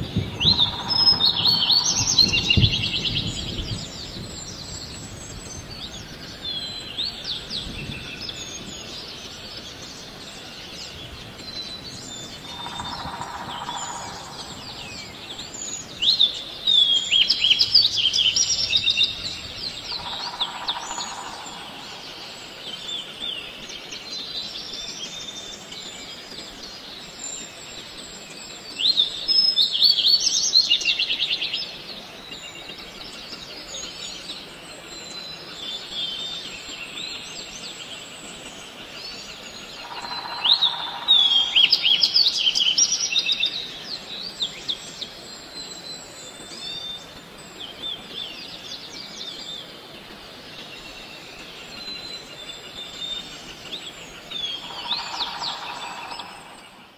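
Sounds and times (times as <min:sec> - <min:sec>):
birds chirping: 0:00.0 - 0:56.9
outdoor background hiss: 0:00.0 - 0:56.9.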